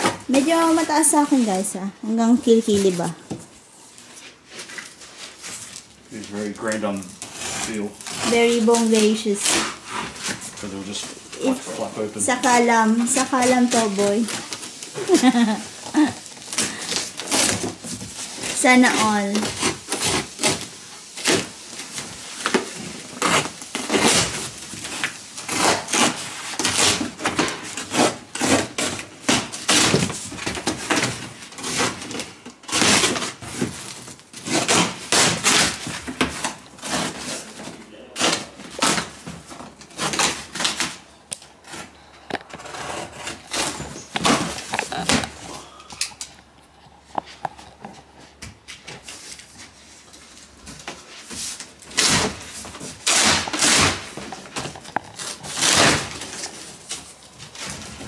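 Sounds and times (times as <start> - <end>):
cardboard ripping and crackling: 3.9 - 45.8, 49.0 - 58.0
box cutter cutting cardboard: 7.2 - 21.6, 22.4 - 41.0, 41.6 - 45.4, 51.8 - 56.7.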